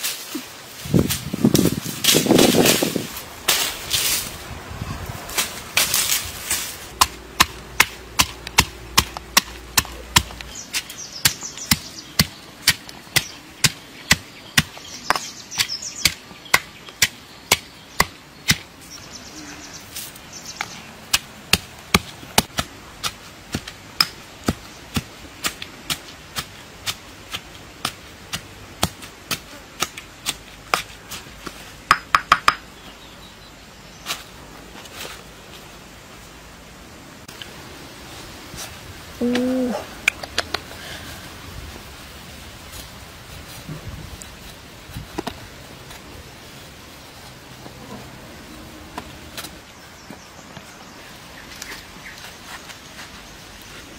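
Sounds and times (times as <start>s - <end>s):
pestle pounding in stone mortar: 7.0s - 15.2s.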